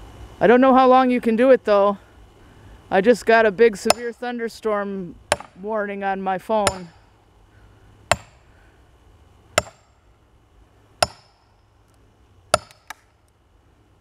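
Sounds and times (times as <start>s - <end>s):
axe strikes splitting log: 3.9s - 4.1s, 5.3s - 5.6s, 8.1s - 8.4s, 9.6s - 10.0s, 11.0s - 11.4s, 12.5s - 13.1s.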